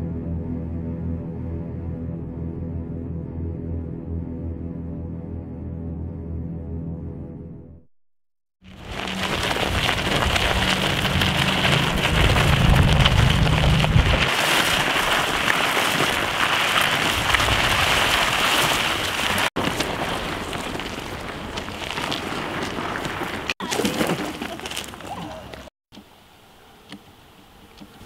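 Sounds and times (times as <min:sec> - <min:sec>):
low droning rumble: 0:08.7 - 0:15.5.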